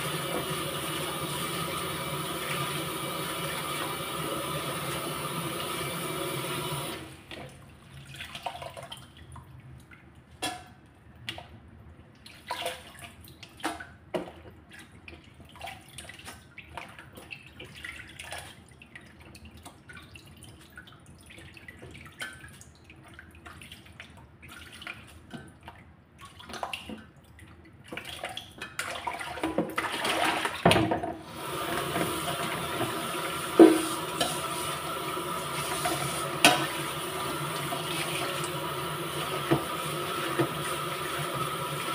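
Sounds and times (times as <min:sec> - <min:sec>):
tap water running into bowl: 0:00.0 - 0:07.6, 0:28.0 - 0:41.9
metal colander knocking bowl: 0:33.6 - 0:34.0.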